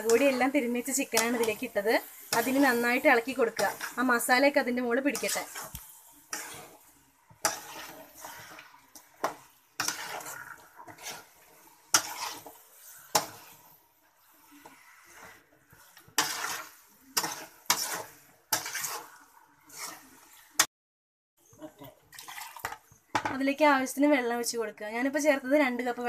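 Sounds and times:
spatula scraping metal pan: 0:00.0 - 0:20.7.

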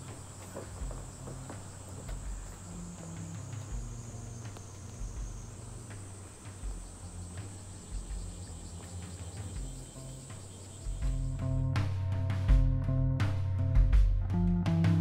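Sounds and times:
faint knocks: 0:00.0 - 0:08.4
insects chirring: 0:00.0 - 0:11.9.

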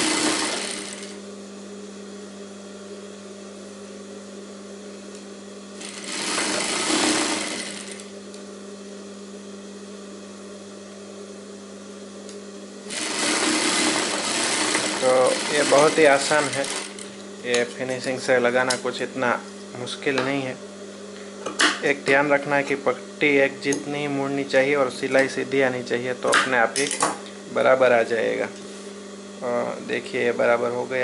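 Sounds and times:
sewing machine stitching: 0:00.0 - 0:01.2, 0:05.8 - 0:08.1, 0:12.9 - 0:17.1
steady low hum: 0:13.9 - 0:31.0.

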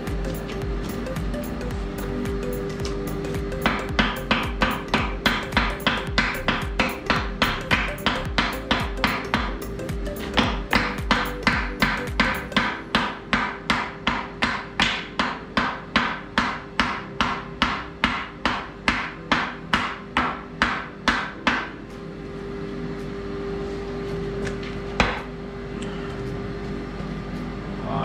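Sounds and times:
hammer striking steel anvil: 0:00.0 - 0:21.8
steady hum: 0:00.0 - 0:28.0.

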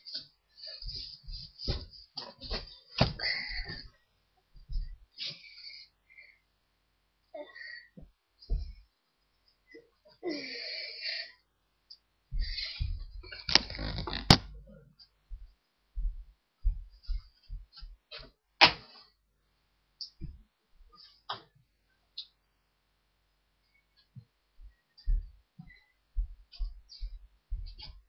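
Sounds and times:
rustling of handled things: 0:00.0 - 0:05.6, 0:12.4 - 0:19.2.

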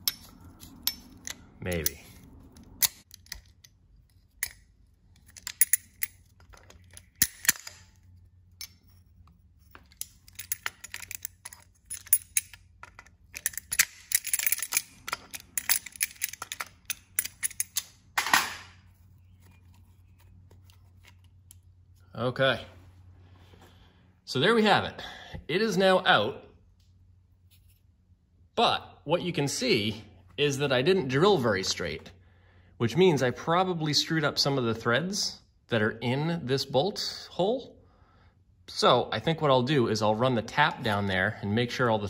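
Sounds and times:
pliers clicking on metal: 0:00.0 - 0:08.0, 0:09.8 - 0:18.0
metal clatter: 0:09.6 - 0:18.7.

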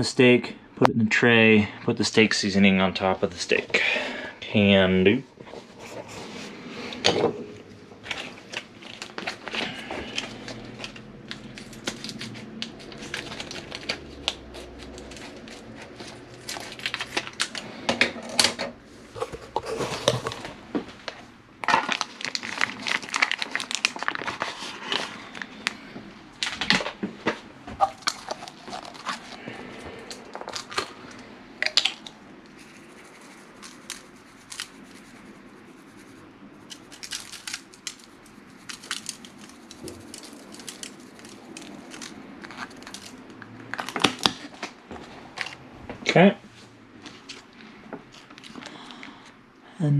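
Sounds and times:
plastic packaging crinkling and tearing: 0:08.0 - 0:18.5, 0:19.1 - 0:27.0, 0:27.7 - 0:45.6, 0:47.0 - 0:49.1.

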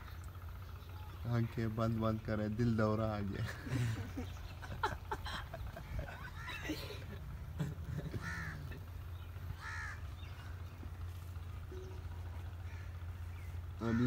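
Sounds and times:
low steady rumble: 0:00.0 - 0:14.0
crow cawing: 0:05.8 - 0:07.0, 0:07.9 - 0:11.1, 0:12.3 - 0:14.0.

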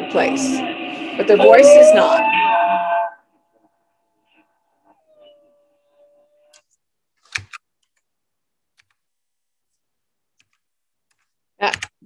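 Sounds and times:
computer mouse clicks: 0:06.5 - 0:08.0.

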